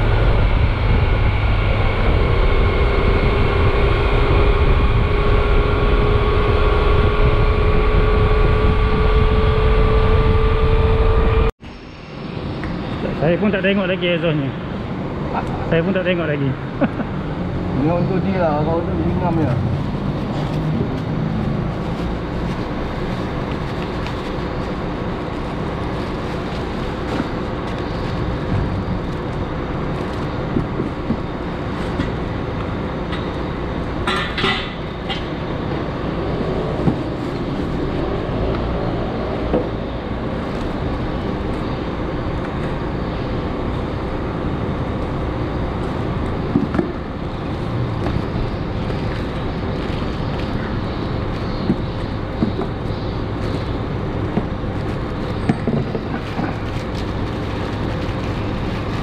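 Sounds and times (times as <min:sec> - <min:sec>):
low rumble: 0:00.0 - 0:13.0
plastic-wrapped parts rustling: 0:19.7 - 0:30.3, 0:54.7 - 0:59.0.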